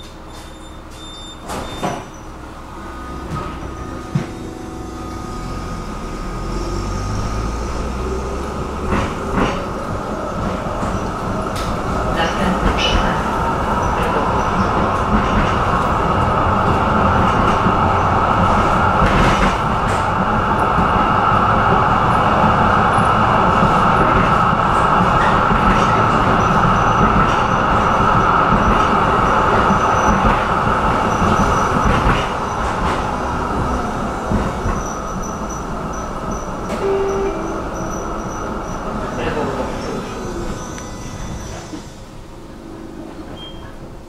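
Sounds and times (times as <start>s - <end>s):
tram wheels rumbling on rails: 0.0s - 44.0s.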